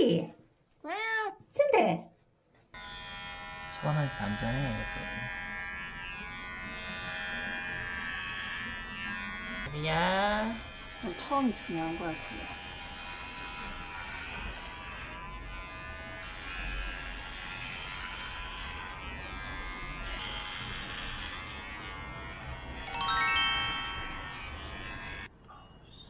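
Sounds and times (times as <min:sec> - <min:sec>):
music with sustained tones: 0:22.9 - 0:24.7
bright bell-like note: 0:22.9 - 0:24.8.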